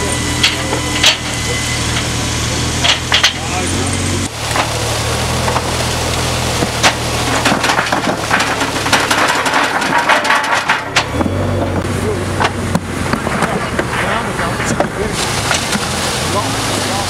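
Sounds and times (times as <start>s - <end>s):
paving bricks knocking and clattering: 2.8s - 3.5s, 6.6s - 11.8s, 12.4s - 15.9s.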